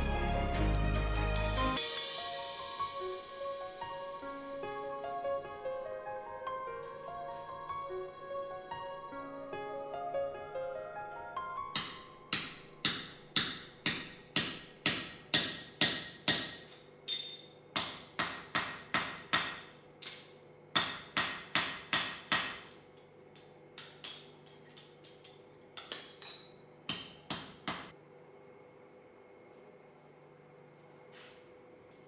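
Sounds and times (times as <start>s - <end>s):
hammer striking metal on anvil: 11.7s - 27.9s.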